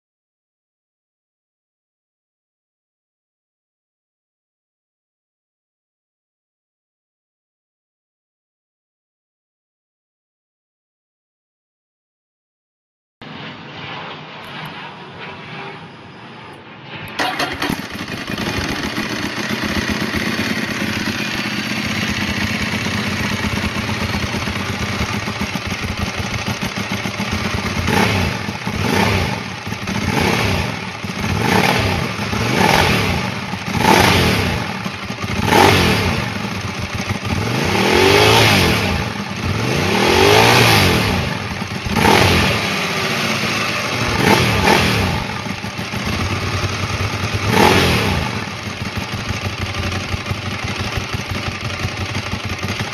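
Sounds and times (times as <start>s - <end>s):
motorcycle engine idling and revving: 17.1s - 52.9s.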